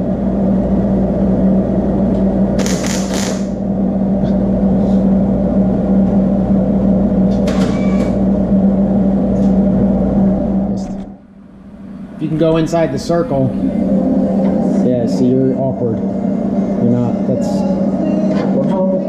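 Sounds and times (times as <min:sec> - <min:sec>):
welding buzzing hum: 0:00.0 - 0:18.5.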